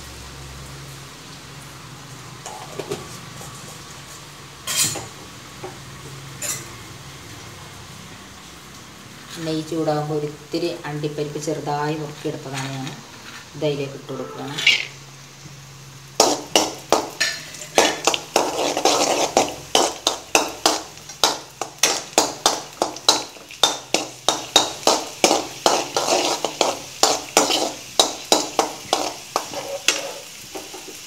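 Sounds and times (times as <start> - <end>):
light sizzle of frying: 0.0 - 31.0
metal ladle scraping a pan: 6.4 - 6.7, 12.2 - 15.0, 16.2 - 31.0.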